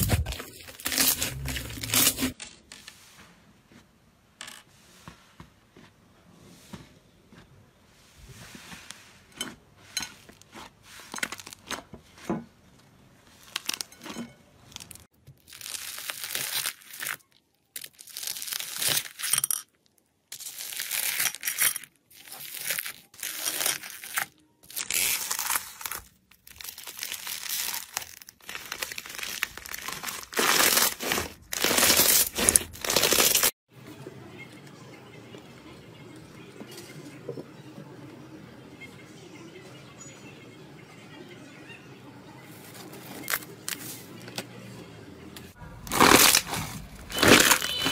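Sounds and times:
crunchy slime squishes: 0.0s - 2.4s, 10.2s - 12.2s, 13.2s - 19.3s, 20.4s - 33.6s, 45.7s - 47.9s
slime crust crackling: 45.9s - 47.9s.

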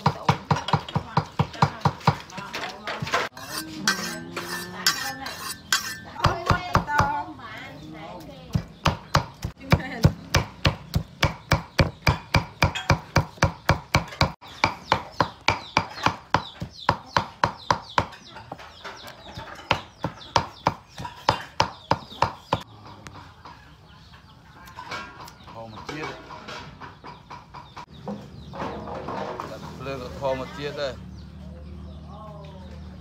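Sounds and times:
cleaver chopping meat on wood: 8.5s - 18.2s, 19.3s - 22.6s.

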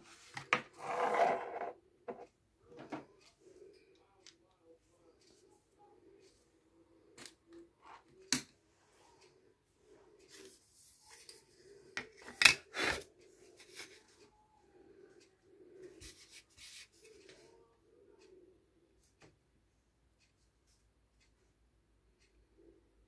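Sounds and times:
light rubbing and scraping: 0.0s - 3.2s.

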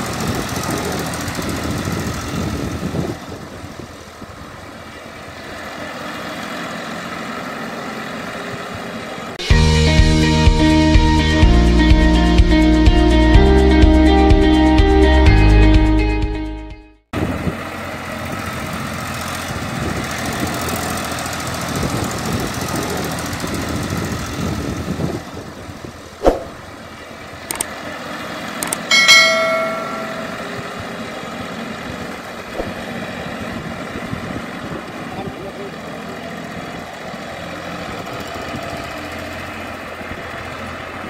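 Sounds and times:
tractor diesel engine running: 0.0s - 10.9s, 17.2s - 41.0s
short ringing tone: 28.6s - 31.0s.

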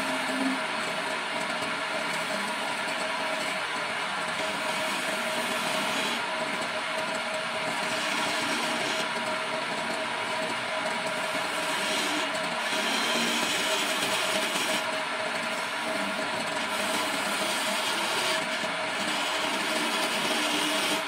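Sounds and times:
wood lathe whining: 0.0s - 21.0s
chisel scraping wood: 4.3s - 6.2s, 7.7s - 9.1s, 11.4s - 14.9s, 16.6s - 21.0s.

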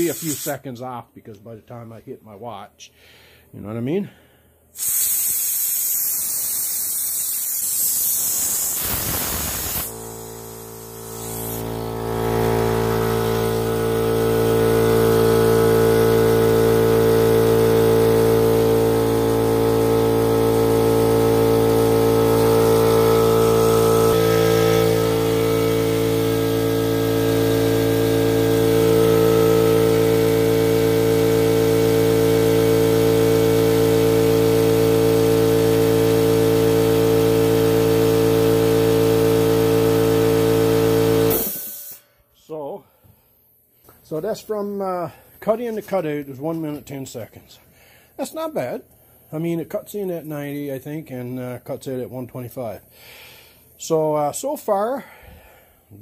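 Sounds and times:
air compressor running: 0.0s - 0.6s, 4.7s - 42.1s
compressed air hissing: 0.0s - 0.7s, 4.7s - 13.8s, 41.3s - 42.0s.

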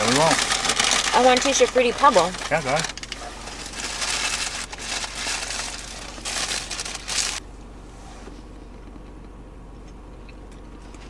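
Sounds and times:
food packaging crinkling: 0.0s - 7.4s.

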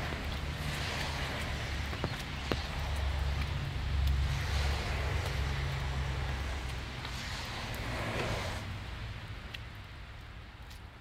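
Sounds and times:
steady rain on a street: 0.0s - 11.0s
light ticks: 2.1s - 4.2s, 9.4s - 10.9s.

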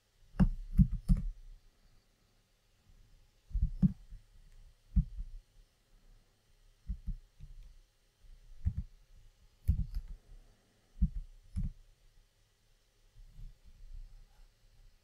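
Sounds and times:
keyboard keystrokes: 0.4s - 1.3s.

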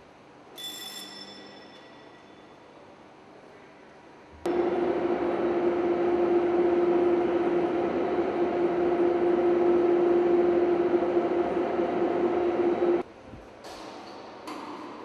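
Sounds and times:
machinery hum with even tone: 0.1s - 13.2s
noisy machinery drone: 4.5s - 13.0s.

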